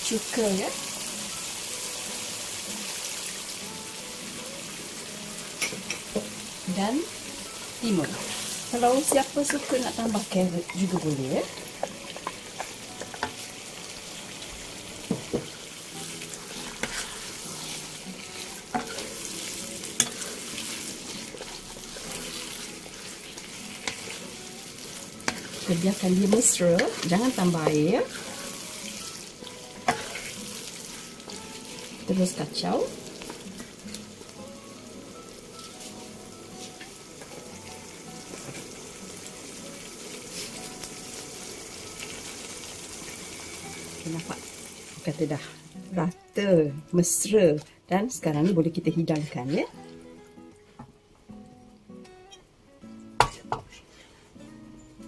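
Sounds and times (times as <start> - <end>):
sauce sizzling in a wok: 0.0 - 55.0
spatula tapping and scraping pan: 16.8 - 17.2, 18.4 - 19.1, 29.8 - 30.4.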